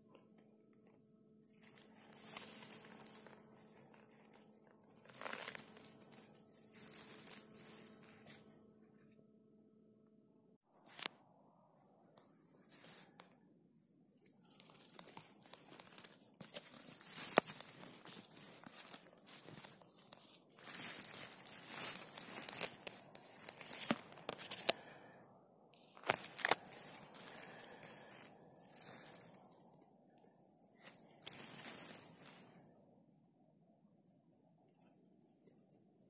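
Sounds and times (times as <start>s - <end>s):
dry needles and twigs rustling: 0.1s - 9.1s, 12.4s - 25.1s, 25.8s - 32.8s
twigs cracking: 0.8s - 8.5s, 14.1s - 25.0s, 25.8s - 32.7s.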